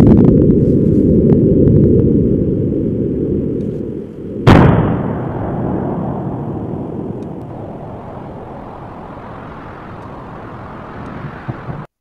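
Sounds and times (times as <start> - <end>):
low rumble: 0.0 - 11.9
rushing noise: 4.0 - 11.9
loud eruption boom: 4.3 - 11.9.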